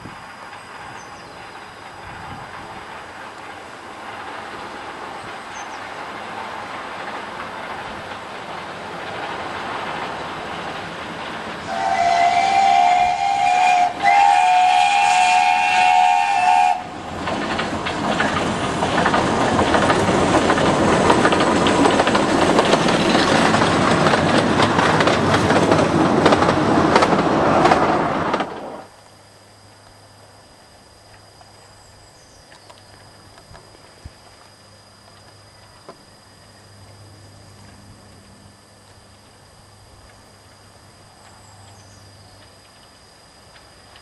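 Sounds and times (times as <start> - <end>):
steam locomotive clattering past: 0.0 - 29.0
steam locomotive whistle blasts: 11.6 - 16.9.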